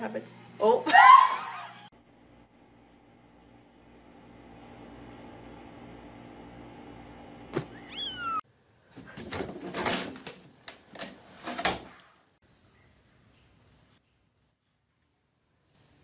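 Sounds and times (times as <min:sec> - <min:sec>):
kitten meowing: 0:07.7 - 0:08.4
cat scrambling in laundry hamper: 0:08.9 - 0:12.1.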